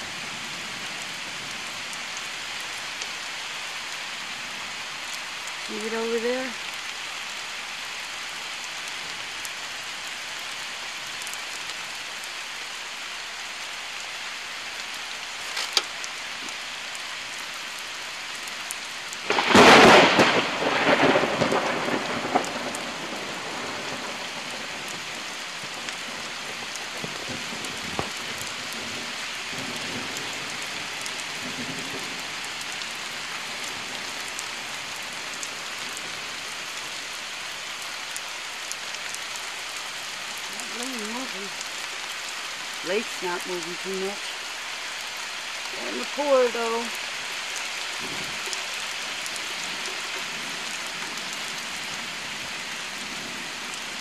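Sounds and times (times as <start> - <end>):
steady rain falling: 0.0 - 54.0
thunder rumbling: 19.2 - 32.2.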